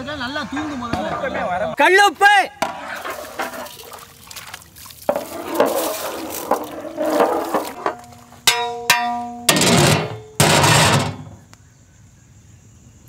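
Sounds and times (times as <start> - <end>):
curry sloshing as ladle stirs: 3.0 - 8.3
metal pot lid clanking: 6.5 - 11.4.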